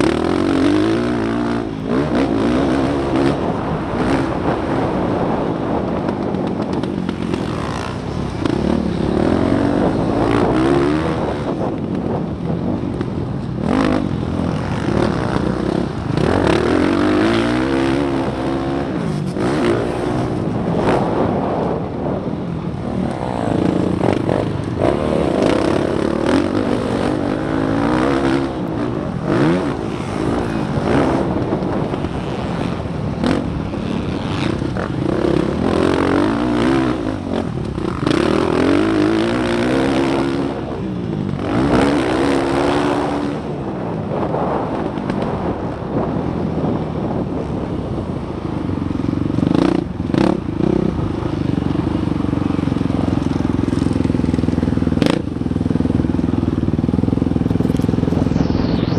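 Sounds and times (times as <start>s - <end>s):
dirt bike engine revving: 0.0s - 12.2s, 13.0s - 21.8s, 22.7s - 43.5s.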